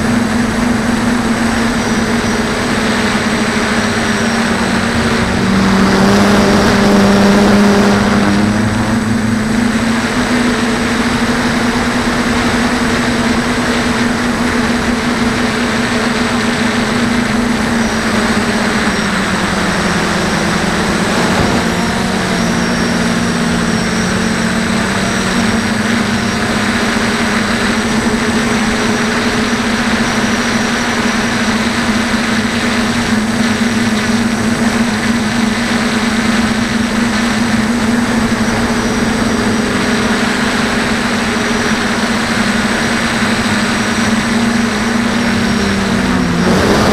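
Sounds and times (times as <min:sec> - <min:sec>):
drone propellers whining: 0:00.0 - 0:46.9
steady rushing noise: 0:00.0 - 0:46.9.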